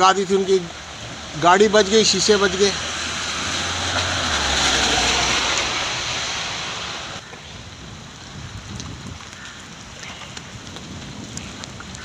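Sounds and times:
heavy rain: 0:00.0 - 0:12.0
tyres swishing through water: 0:00.2 - 0:07.2
vehicle driving past: 0:00.8 - 0:07.2.

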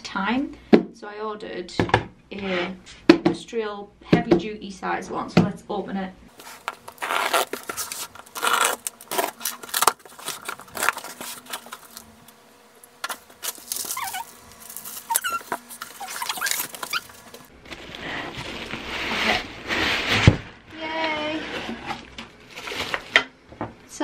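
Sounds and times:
cardboard flaps squeaking: 0:06.3 - 0:12.2, 0:13.0 - 0:17.5
box cutter slitting packing tape: 0:06.4 - 0:12.0, 0:13.0 - 0:17.2.

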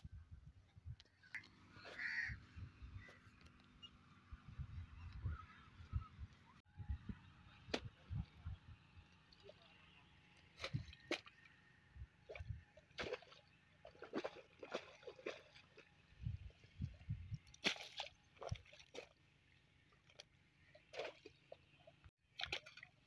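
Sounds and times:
water squelching and splashing: 0:09.0 - 0:11.6, 0:12.2 - 0:23.0
spade slapping wet mud: 0:12.3 - 0:15.8, 0:17.5 - 0:19.2, 0:20.9 - 0:21.6, 0:22.4 - 0:22.9.

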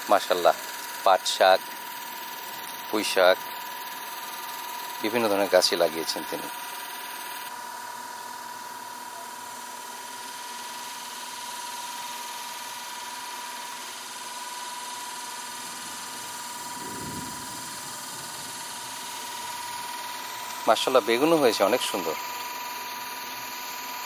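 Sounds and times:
even hiss: 0:15.3 - 0:23.5.

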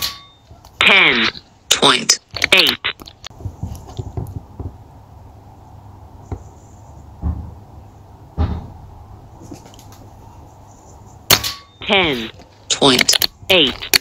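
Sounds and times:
dull thumps: 0:03.3 - 0:04.8, 0:07.1 - 0:07.7, 0:08.3 - 0:08.9.

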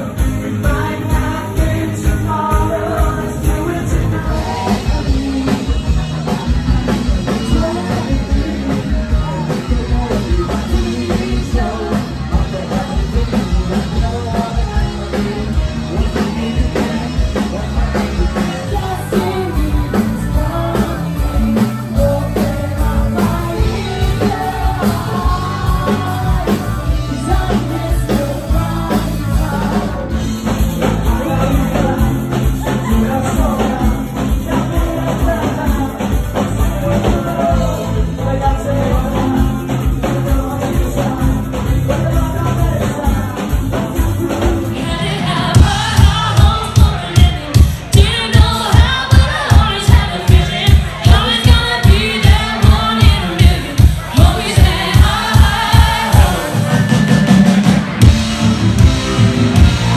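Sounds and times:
person singing: 0:00.0 - 0:59.0
bass: 0:00.0 - 0:59.9
guitar: 0:00.0 - 0:59.9
drum beat: 0:45.5 - 0:59.9.

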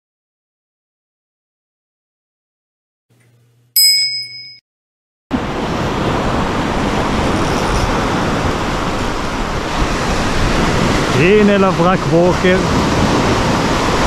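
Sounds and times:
bright chime ringing: 0:03.8 - 0:04.6
sea surf on rocky shore: 0:05.3 - 0:14.0.

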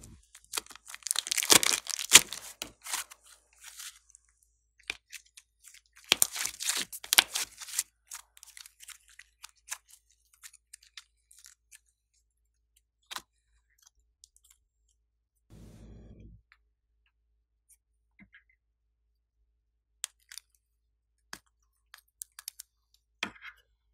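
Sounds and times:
slime stretching with sticky pops: 0:00.4 - 0:03.0.

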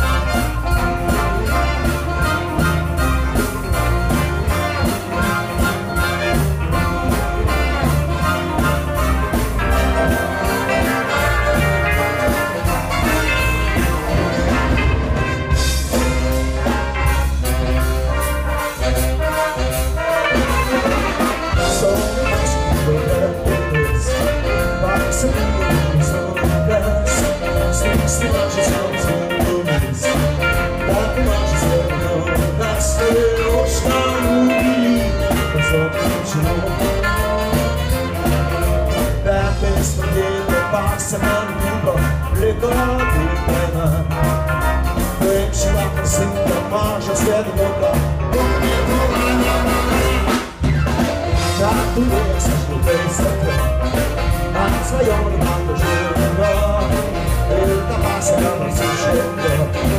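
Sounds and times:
big band jazz instrumental: 0:00.0 - 0:59.9.

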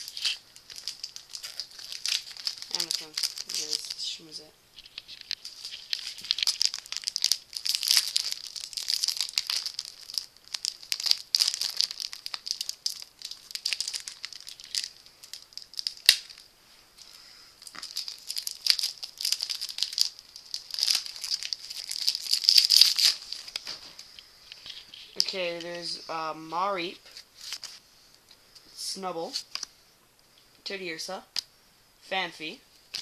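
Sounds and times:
foil wrapper crinkling and tearing: 0:00.0 - 0:16.5, 0:17.6 - 0:25.4, 0:27.1 - 0:27.8.

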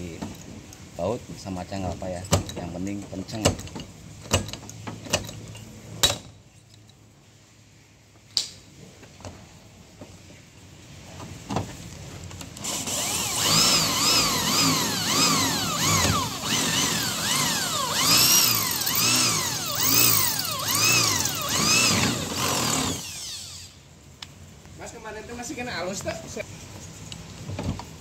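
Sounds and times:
electric drill boring through metal: 0:12.6 - 0:23.8.

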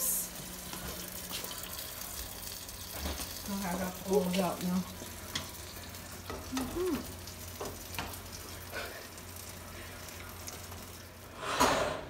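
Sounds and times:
water boiling in a pot: 0:00.0 - 0:12.0.

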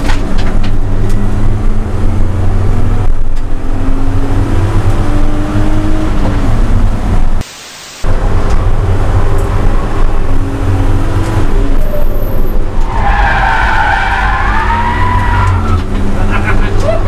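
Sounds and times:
tyres squealing: 0:11.8 - 0:16.1.

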